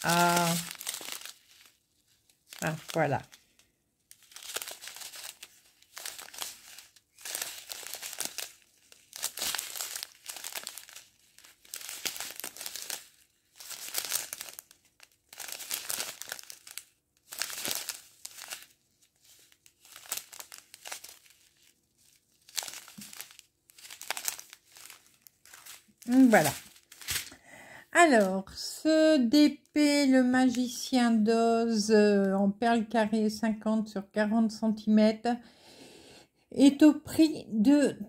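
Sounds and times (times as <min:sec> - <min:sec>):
plastic bags crinkling: 0:00.0 - 0:27.4.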